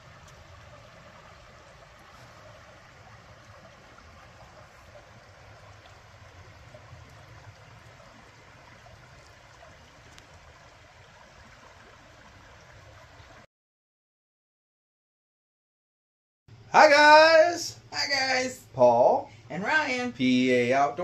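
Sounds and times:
creek running over rocks: 0.0 - 13.5.

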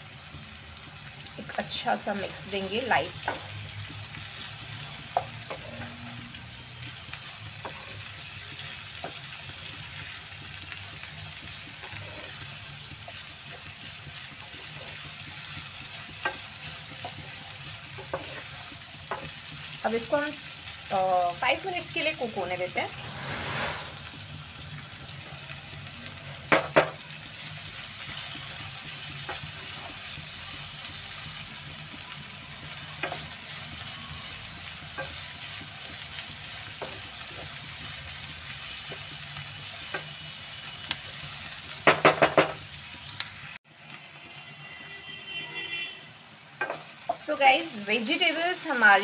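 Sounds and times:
vegetables sizzling in oil: 0.0 - 44.3, 46.2 - 49.0
wooden spatula knocking on pan: 26.5 - 27.0, 41.8 - 42.6.

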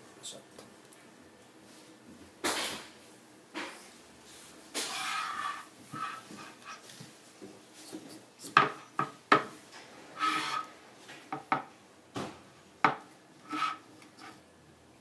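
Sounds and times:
short scrapes and squeaks: 4.8 - 6.2, 10.2 - 10.7, 13.4 - 14.4.

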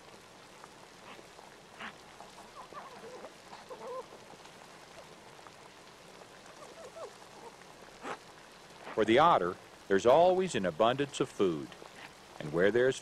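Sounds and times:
crunch on snow: 0.0 - 7.1
steady hiss: 0.0 - 13.0.

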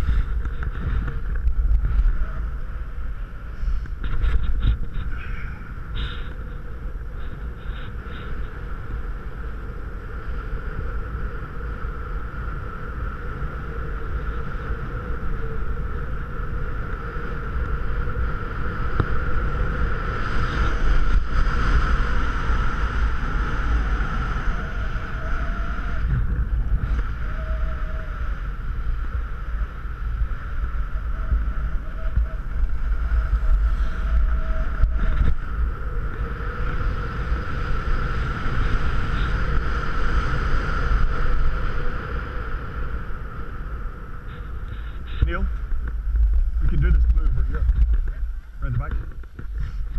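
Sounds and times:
wind buffeting microphone: 0.0 - 49.9.

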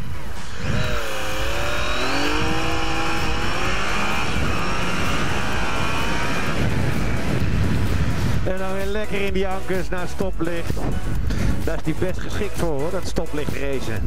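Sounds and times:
wind noise over helmet: 0.0 - 9.4, 10.6 - 11.8
motorcycle engine accelerating: 0.0 - 9.9.

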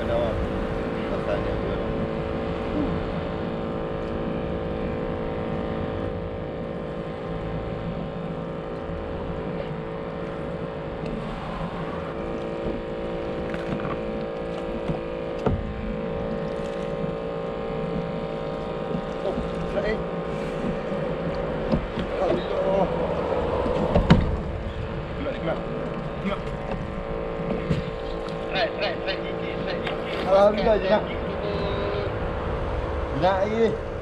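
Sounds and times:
boat motor running: 0.0 - 34.0
water noise: 0.0 - 34.0
wind noise: 7.8 - 34.0.

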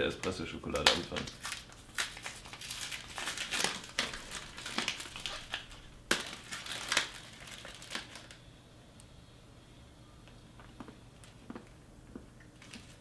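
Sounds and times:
chocolate wrapper crinkling: 0.2 - 8.4.

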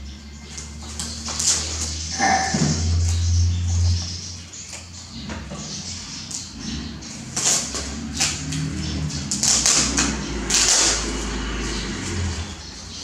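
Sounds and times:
low steady hum: 0.0 - 9.4.

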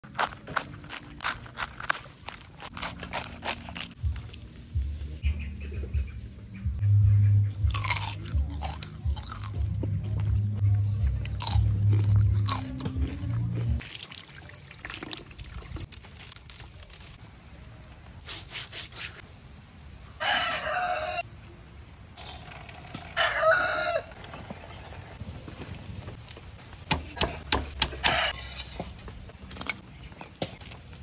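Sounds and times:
crispy skin crunching: 0.0 - 4.4
rooster crowing: 20.2 - 21.3, 23.1 - 24.2.

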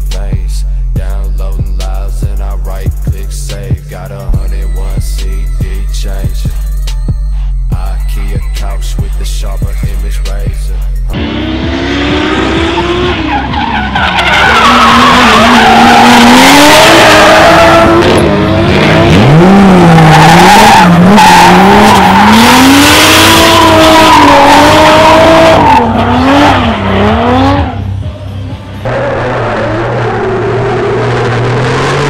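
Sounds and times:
car engines revving: 9.0 - 32.0
tyres skidding: 11.0 - 32.0.

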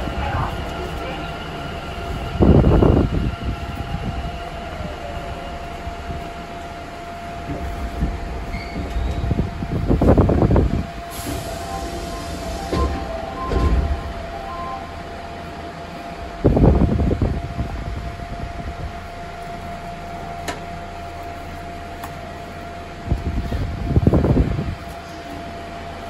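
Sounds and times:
train rumble: 0.0 - 26.0
short beeps: 11.6 - 15.1.

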